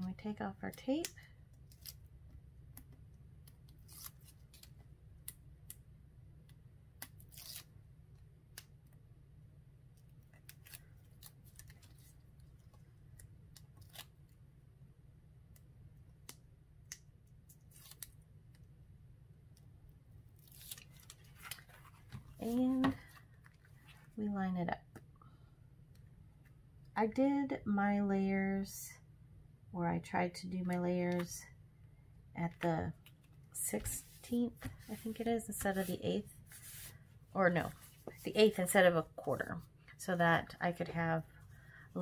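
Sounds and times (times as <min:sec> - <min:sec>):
low steady hum: 0:00.0 - 0:42.0
tape liner peeling: 0:03.5 - 0:05.8, 0:07.0 - 0:07.8, 0:13.1 - 0:14.3, 0:17.5 - 0:18.2, 0:20.4 - 0:22.0.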